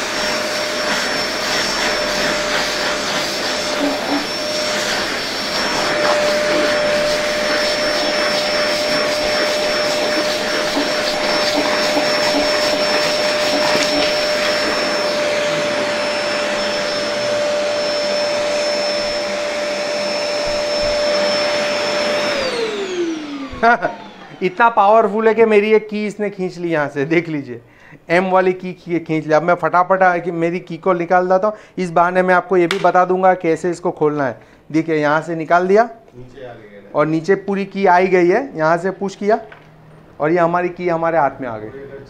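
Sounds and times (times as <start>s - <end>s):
vacuum cleaner running: 0.0s - 26.6s.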